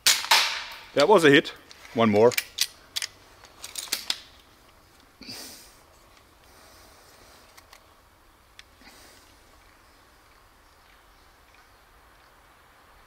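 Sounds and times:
crossbow mechanism clicks: 1.7 - 5.1, 7.4 - 7.9.

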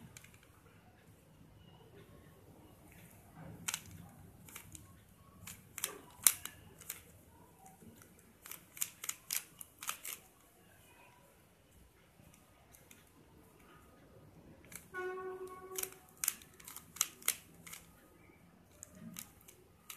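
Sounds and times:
puzzle cube clicking: 3.6 - 10.4, 15.7 - 17.9, 18.7 - 19.9.

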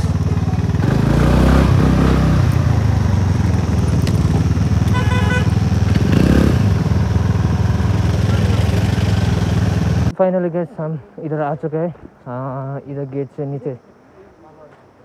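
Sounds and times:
scooter engine puttering: 0.0 - 10.1
horn beep: 4.8 - 6.5.

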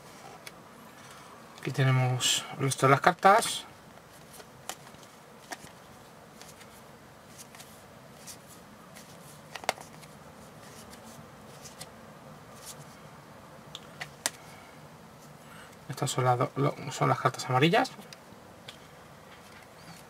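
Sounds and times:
cards rustling and ticking: 3.0 - 11.9.

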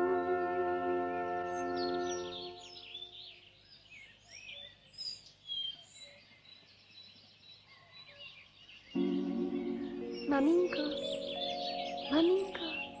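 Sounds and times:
music held notes: 0.0 - 2.8, 9.0 - 13.0
birds twittering: 0.0 - 13.0.

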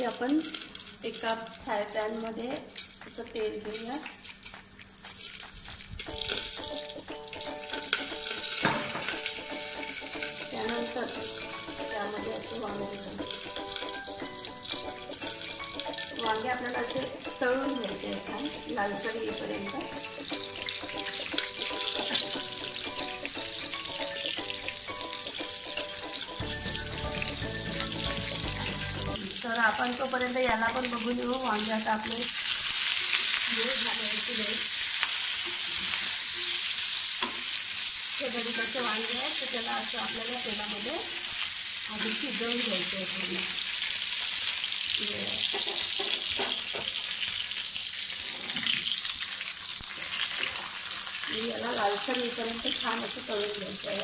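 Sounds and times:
vegetables sizzling in oil: 0.0 - 54.0
background music: 6.0 - 34.6.

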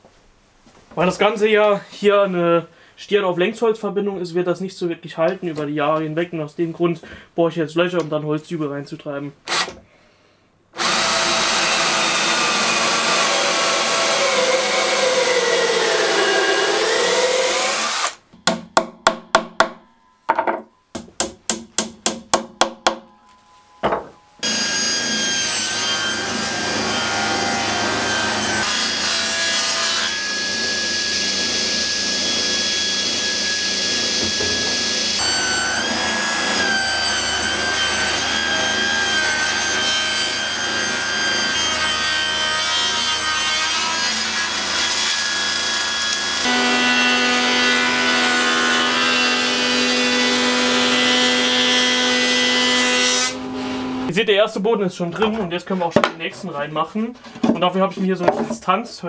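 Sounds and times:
cordless drill boring into wood: 9.5 - 9.8, 10.8 - 18.2
table saw cutting board: 10.8 - 18.2, 24.4 - 54.1.

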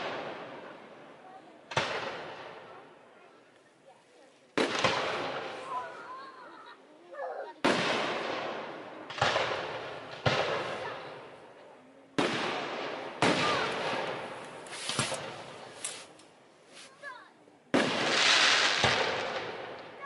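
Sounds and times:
crackling firework pops: 1.7 - 2.7, 4.5 - 5.7, 7.6 - 11.3, 12.2 - 16.3, 17.7 - 20.0
firework bangs with echo: 1.7 - 2.8, 4.6 - 5.8, 7.6 - 11.4, 12.2 - 16.1, 17.7 - 20.0.

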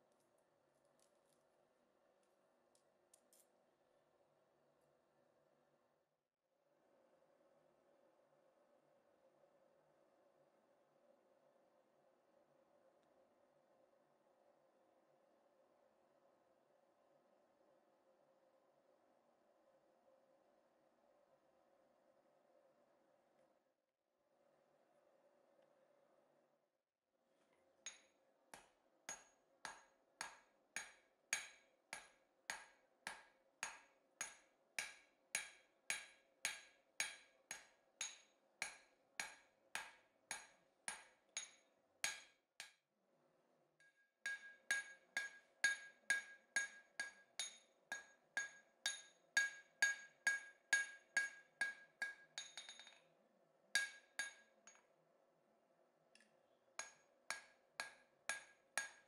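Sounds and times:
hammer striking steel on anvil: 27.9 - 42.7, 44.3 - 53.0, 53.8 - 54.8, 56.8 - 59.0.

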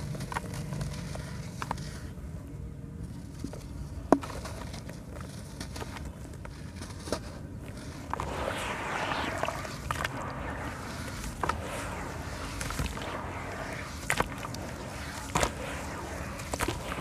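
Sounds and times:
sharp crackles: 7.7 - 17.0.

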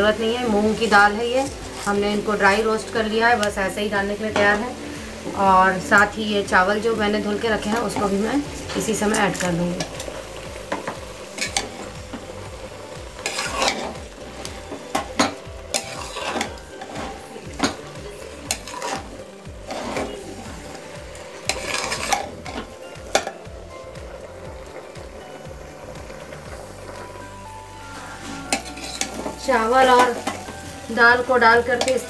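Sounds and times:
food sizzling: 0.0 - 32.0
metal spoon scraping a pot: 13.2 - 14.0, 15.2 - 17.0, 18.5 - 19.1, 21.5 - 22.6, 28.2 - 29.3.

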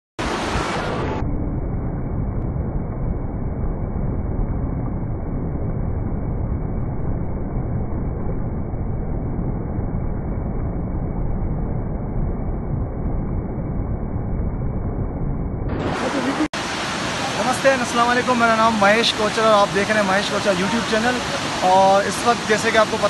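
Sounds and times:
stream rushing over rocks: 15.8 - 23.0.

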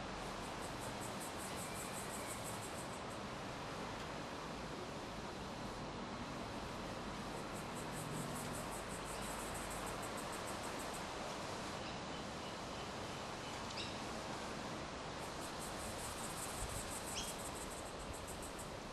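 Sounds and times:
insect chirping in rapid pulses: 0.0 - 3.3, 5.6 - 11.2, 15.1 - 18.9
steady hiss: 0.0 - 18.9.

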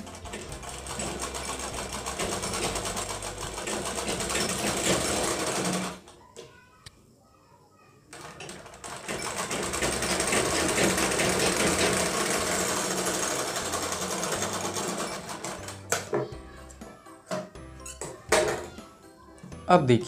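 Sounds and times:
sewing machine running: 0.0 - 6.0, 8.1 - 16.0.

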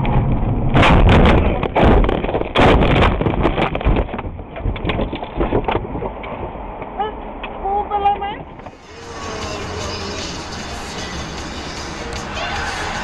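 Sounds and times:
knocks and rattles: 0.0 - 6.0.

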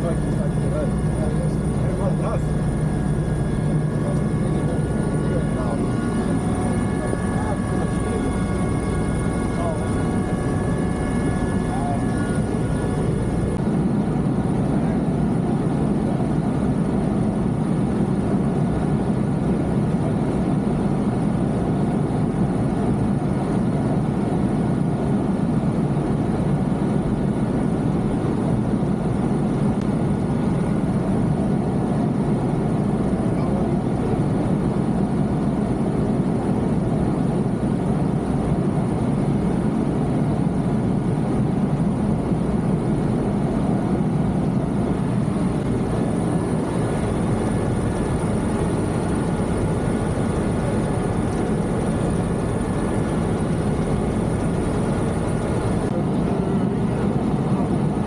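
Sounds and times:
high-pitched whine: 0.0 - 13.8, 44.5 - 56.0
helicopter engine and rotor drone: 0.0 - 58.0.

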